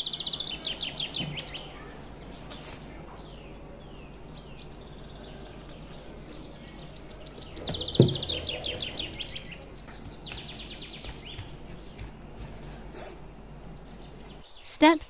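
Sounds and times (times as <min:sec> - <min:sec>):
dull thump: 0:07.6 - 0:09.4.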